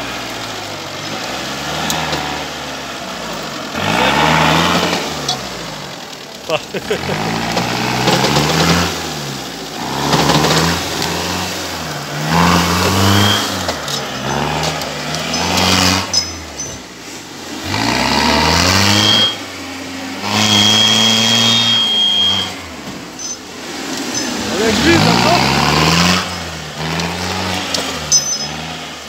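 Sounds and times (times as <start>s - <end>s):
off-road engines revving: 0.0s - 29.0s
thin high whine: 12.3s - 14.4s, 18.9s - 19.5s, 20.2s - 23.5s.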